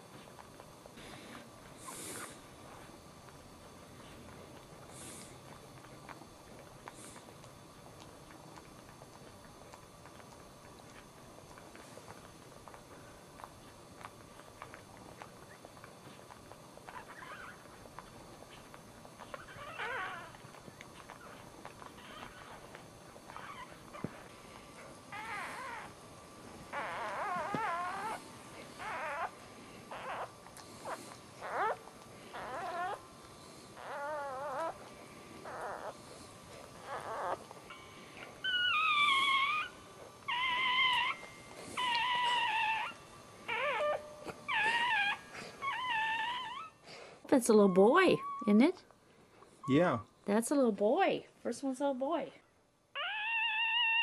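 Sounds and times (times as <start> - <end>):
puppy squeaking: 16.9 - 18.0, 19.2 - 24.2, 25.1 - 25.9, 26.7 - 28.2, 28.8 - 33.0, 33.8 - 36.0, 36.8 - 46.8, 47.5 - 48.6, 53.0 - 54.0.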